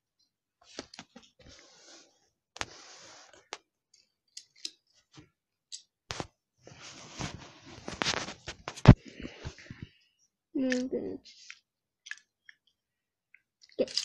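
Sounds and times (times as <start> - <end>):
rustling scrapes: 1.4 - 3.4, 6.1 - 9.8.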